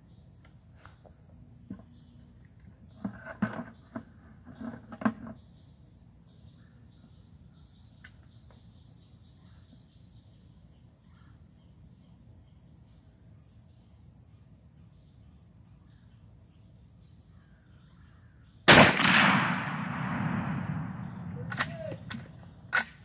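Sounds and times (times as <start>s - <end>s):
faint insects chirring: 0.0s - 23.0s
rifle shot with rolling echo: 18.7s - 22.9s.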